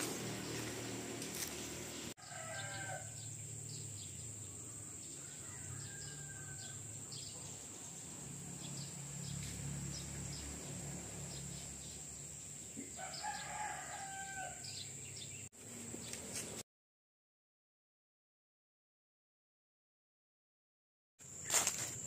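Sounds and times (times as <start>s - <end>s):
rooster crowing: 2.2s - 3.3s, 4.5s - 7.2s, 12.9s - 14.9s.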